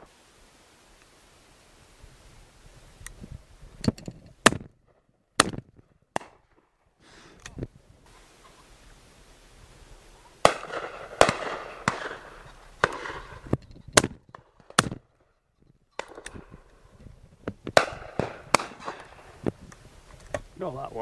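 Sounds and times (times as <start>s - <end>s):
shotgun shots: 4.4s - 4.7s, 5.4s - 6.6s, 10.4s - 15.1s, 17.8s - 19.4s.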